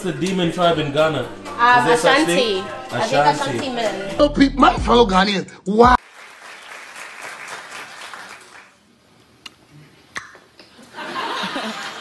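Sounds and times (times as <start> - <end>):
studio audience applauding and cheering: 6.0 - 8.8.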